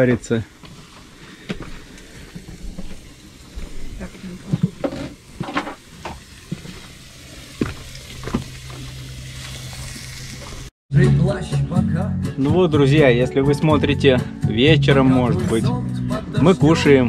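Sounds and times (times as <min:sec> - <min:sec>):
food sizzling: 0:00.0 - 0:10.7.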